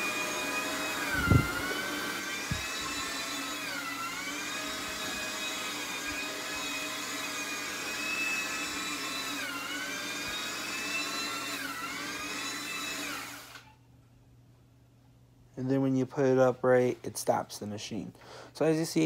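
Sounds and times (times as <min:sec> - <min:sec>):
floor polisher motor whine: 0:00.0 - 0:13.6.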